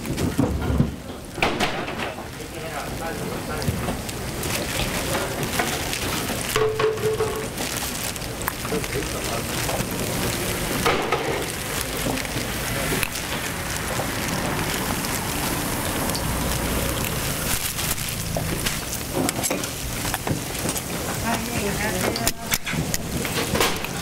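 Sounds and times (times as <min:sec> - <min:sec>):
food sizzling in oil: 0:01.2 - 0:24.0.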